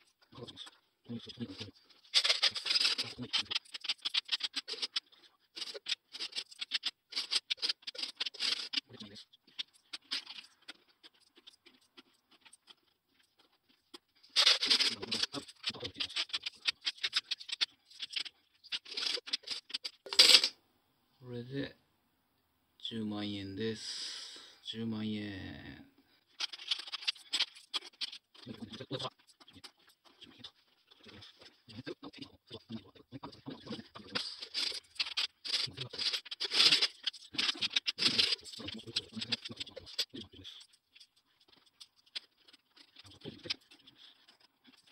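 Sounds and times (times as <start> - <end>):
coins jingling in plastic bank: 14.4 - 20.5
coins clinking on wooden table: 20.1 - 20.5.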